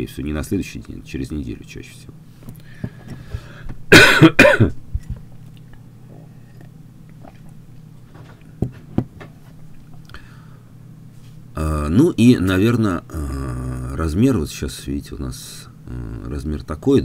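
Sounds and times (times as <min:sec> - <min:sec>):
person coughing: 0:03.9 - 0:04.8.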